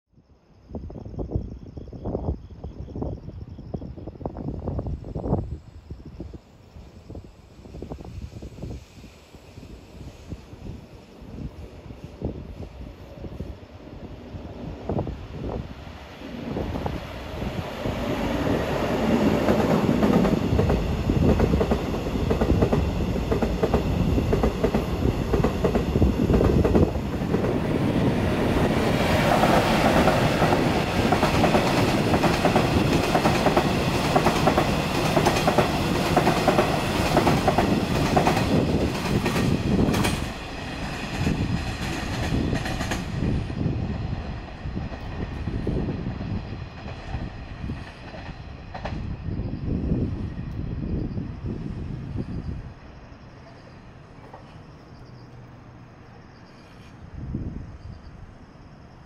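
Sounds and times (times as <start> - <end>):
train cars rolling on rails: 6.2 - 57.0.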